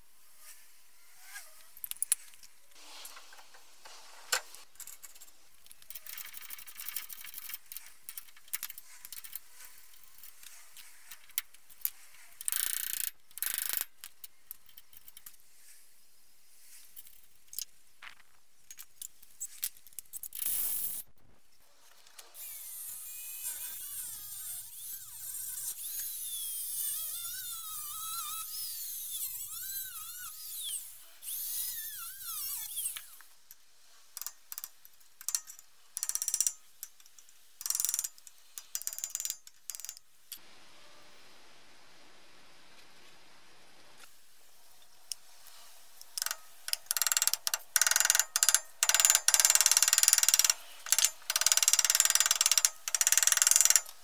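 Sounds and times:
steady hiss: 1.5s - 13.6s
hand tools clicking and knocking: 34.2s - 40.0s, 46.1s - 54.0s.

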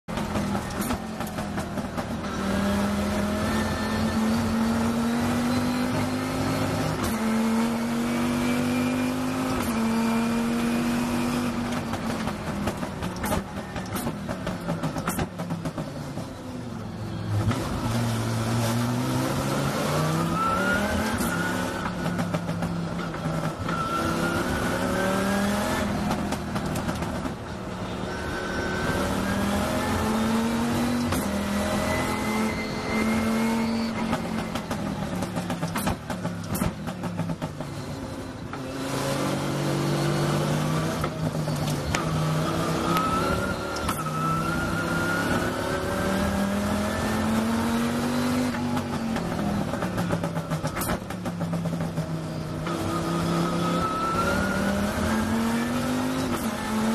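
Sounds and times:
race car engine at full throttle: 0.0s - 56.9s.

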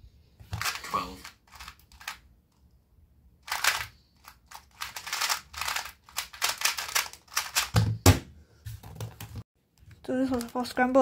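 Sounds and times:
speed cube plastic clicks: 0.6s - 2.2s, 3.4s - 7.8s.

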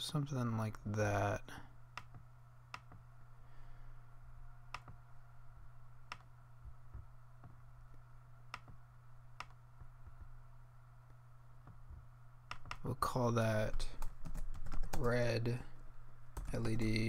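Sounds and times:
faint low hum: 0.0s - 17.0s
computer mouse clicking: 4.7s - 5.0s, 6.1s - 6.3s, 8.5s - 8.8s, 12.5s - 12.8s.

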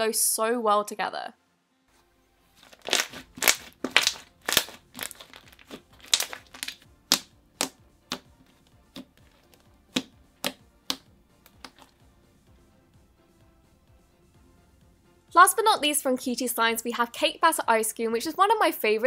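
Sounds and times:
slime clicking and popping: 2.6s - 8.3s, 8.9s - 11.9s.

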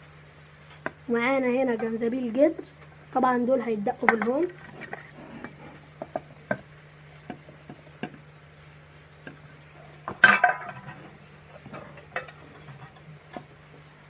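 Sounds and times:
plate knocking on wooden mortar: 6.0s - 6.7s.

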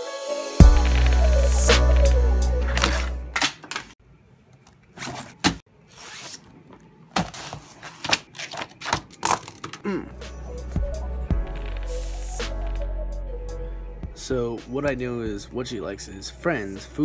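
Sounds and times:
intro music: 0.0s - 3.4s, 10.1s - 17.0s
hand rummaging in a backpack: 2.6s - 4.0s, 4.6s - 9.8s
paper planner handling: 7.2s - 9.7s.

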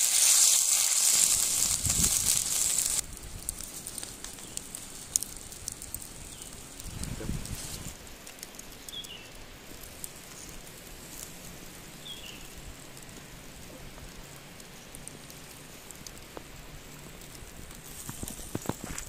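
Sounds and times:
meat sizzling over charcoal: 0.0s - 19.0s
small crackles: 0.0s - 19.0s.

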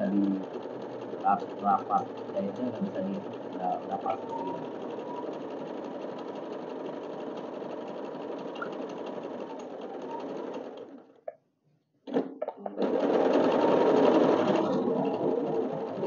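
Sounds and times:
sewing machine running: 0.0s - 11.1s, 12.1s - 16.0s.

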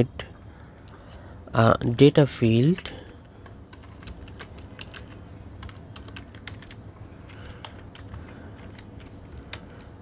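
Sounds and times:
computer keyboard typing: 2.6s - 10.0s.

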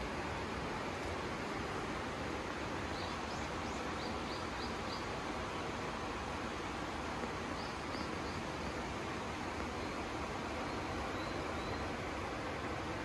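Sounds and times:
forest ambience hiss: 0.0s - 13.0s
bird chirping: 2.9s - 5.2s, 10.6s - 11.9s.

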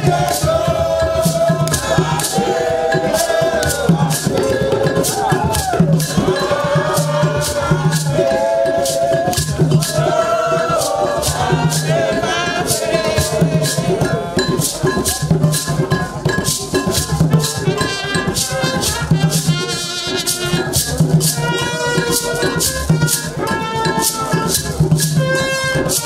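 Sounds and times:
choir singing: 0.0s - 15.7s
rattles shaken in steady beat: 0.0s - 26.0s.

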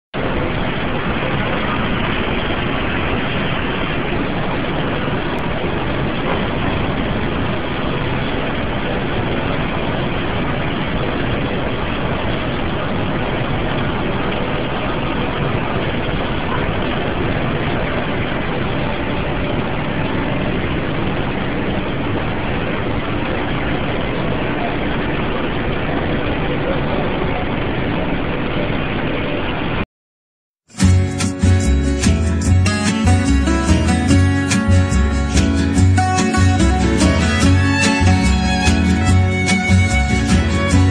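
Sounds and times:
ceiling fan rushing: 30.8s - 40.9s.

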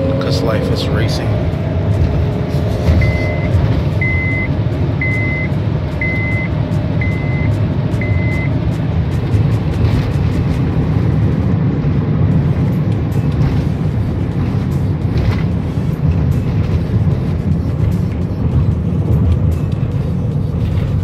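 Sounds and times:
road and engine rumble: 0.0s - 21.0s
short high electronic beeps: 2.9s - 8.5s.

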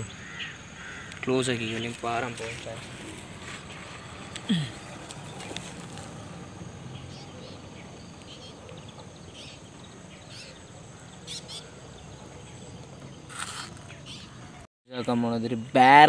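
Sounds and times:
bird chirps: 6.9s - 14.6s.

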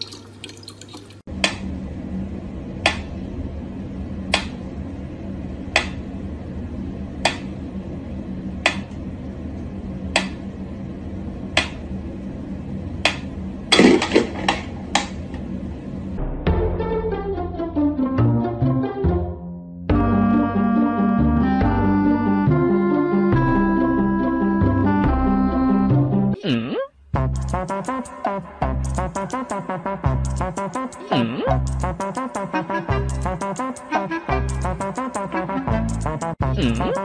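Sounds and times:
music: 16.2s - 26.4s, 27.1s - 37.0s.

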